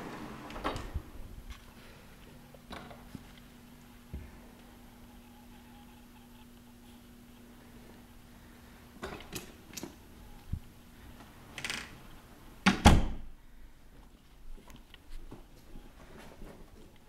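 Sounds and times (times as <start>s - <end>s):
door clicks and knocks: 12.6s - 13.2s
door shutting with a thud: 12.6s - 13.3s.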